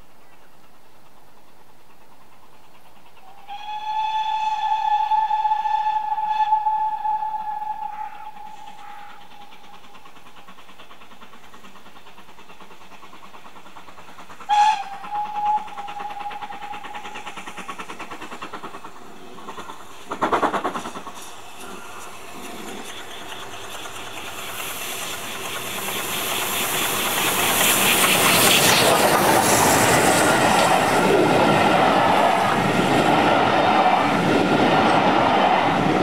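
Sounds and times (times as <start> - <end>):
steam hissing: 0.0 - 36.0
train wheels beating on rails: 0.0 - 36.0
steam locomotive whistle: 3.2 - 9.6, 14.5 - 17.1.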